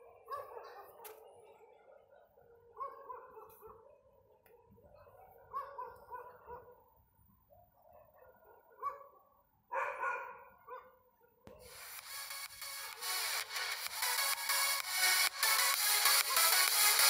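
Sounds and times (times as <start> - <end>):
dog barking: 0.0 - 11.4
music: 11.5 - 17.0.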